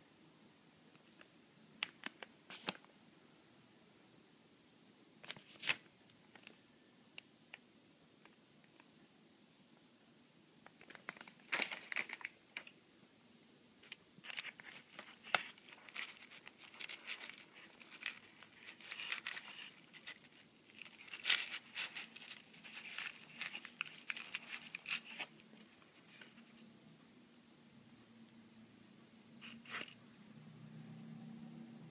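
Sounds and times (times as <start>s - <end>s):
paper tray crinkling: 13.8s - 26.4s.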